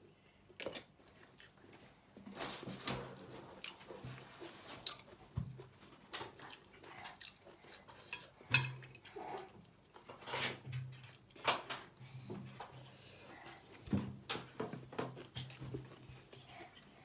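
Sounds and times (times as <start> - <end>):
chewing: 0.5 - 1.8, 3.6 - 11.9, 14.7 - 17.0.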